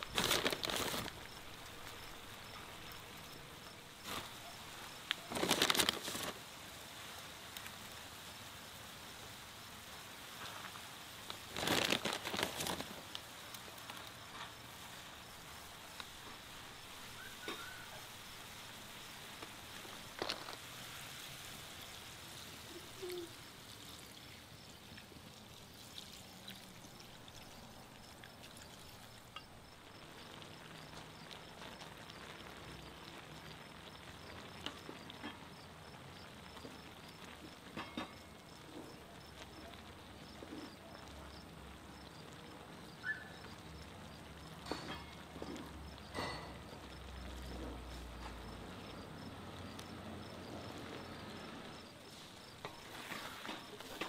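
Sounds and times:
pan simmering with hiss: 0:00.0 - 0:54.0
small pops and clicks: 0:15.9 - 0:16.2.

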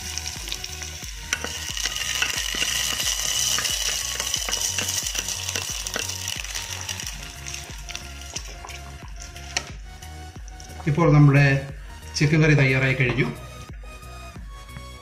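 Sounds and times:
hot oil sizzling: 0:00.0 - 0:11.0.

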